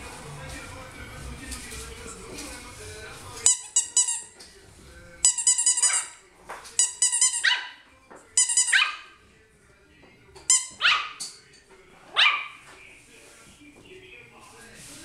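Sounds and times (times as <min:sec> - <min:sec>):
puppy yipping barks: 0:07.2 - 0:07.8, 0:08.6 - 0:09.1, 0:10.5 - 0:11.2, 0:12.1 - 0:12.6.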